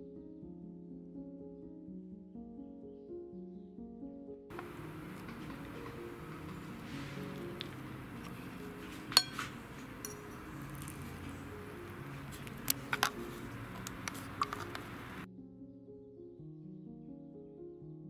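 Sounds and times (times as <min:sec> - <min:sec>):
soft background music: 0:00.0 - 0:18.0
metal utensil clinking on plate: 0:07.6 - 0:11.2.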